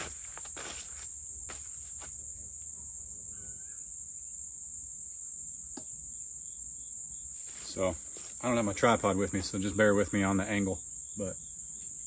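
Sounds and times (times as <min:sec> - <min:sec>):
insects chirring: 0:00.0 - 0:12.0.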